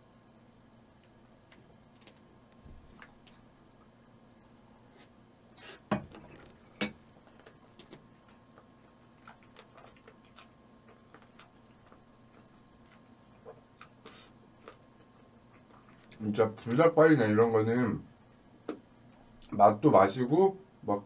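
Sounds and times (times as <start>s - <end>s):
chewing with wet mouth clicks: 7.3s - 16.2s.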